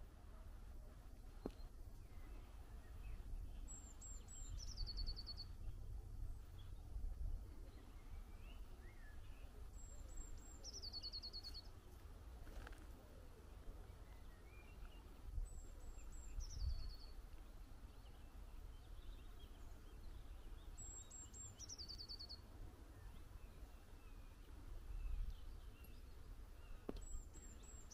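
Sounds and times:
faint low rumble: 0.0s - 21.4s
songbird singing: 0.0s - 27.9s.

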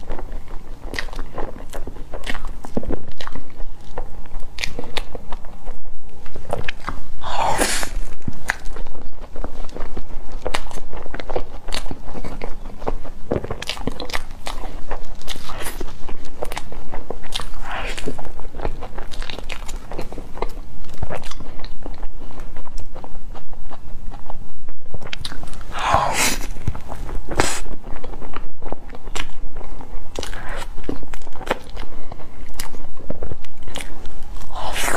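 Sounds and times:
wet chewing: 0.0s - 34.9s
sucking sounds: 7.2s - 8.2s, 25.7s - 26.7s, 34.4s - 34.9s
lip and tongue smacks: 25.0s - 29.4s
lip smacks: 25.0s - 34.9s
sticky mouth clicks: 25.0s - 34.9s.

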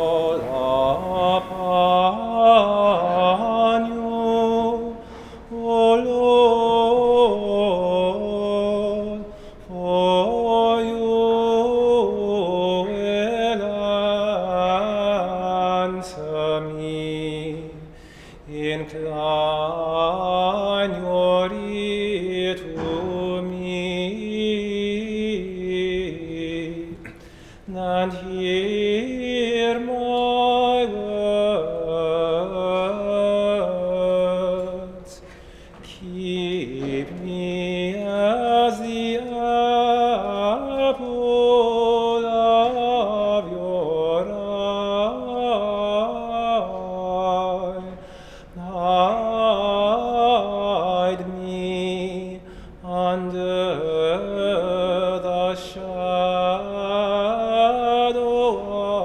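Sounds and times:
person chanting: 0.0s - 59.0s.

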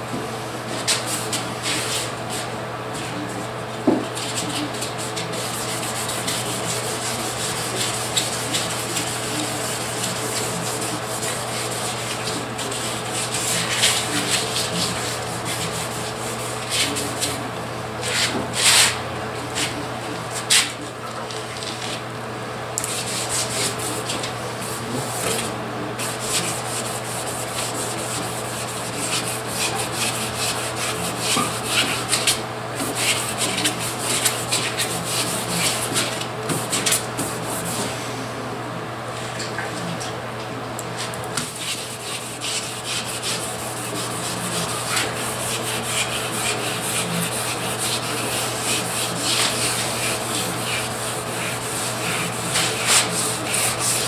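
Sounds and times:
wet sandpaper rubbing paint: 4.2s - 19.0s, 22.9s - 37.8s, 41.0s - 54.0s.

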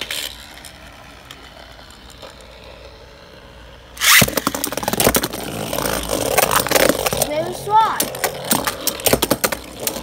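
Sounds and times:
spinning top whirring: 0.0s - 10.0s
loud rush of spinning top: 3.9s - 7.2s.

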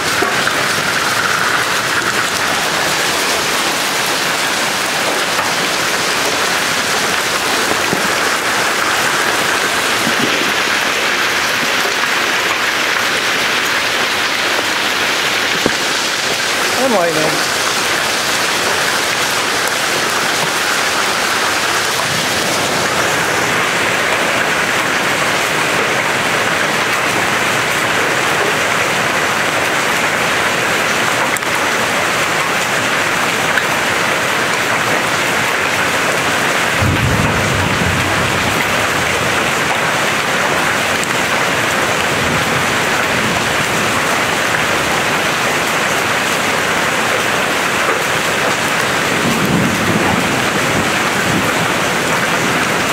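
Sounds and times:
hail and heavy rain: 0.0s - 52.9s
thunder rumble: 36.7s - 40.3s.

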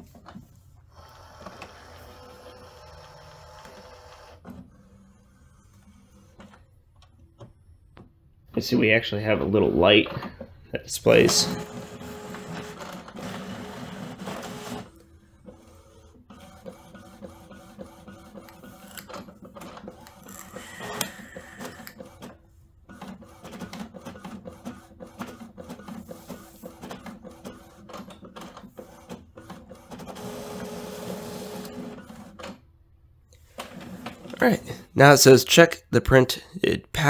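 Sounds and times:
printer motors humming: 0.9s - 6.7s, 11.1s - 32.4s
printer clicks and ticks: 16.4s - 22.2s.

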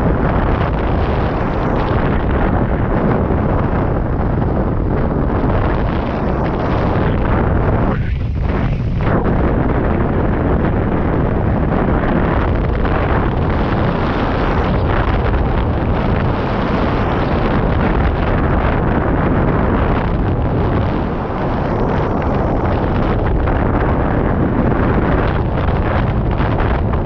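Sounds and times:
wind buffeting microphone: 0.0s - 27.0s.

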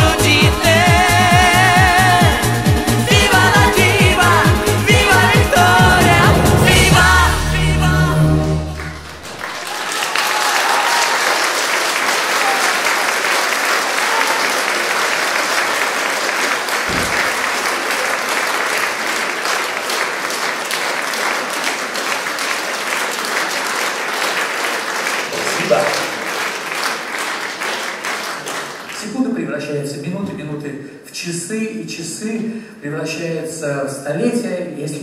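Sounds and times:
song with backing music: 0.0s - 9.5s
audience applauding: 5.7s - 29.2s.

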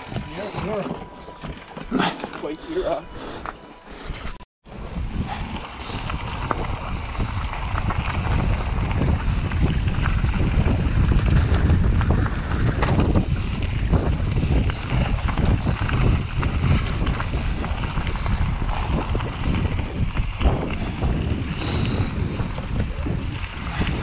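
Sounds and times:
bike clicks and rattles: 0.0s - 2.7s, 3.4s - 24.0s
tyres crunching on stones: 0.0s - 3.6s
wind buffeting microphone: 4.6s - 24.0s.

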